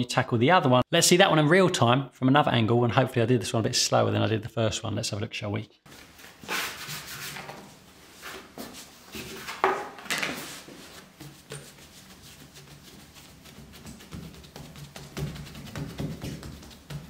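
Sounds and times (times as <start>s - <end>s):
dough slapping on worktop: 9.7s - 17.0s
dough pressing and rubbing: 10.3s - 17.0s.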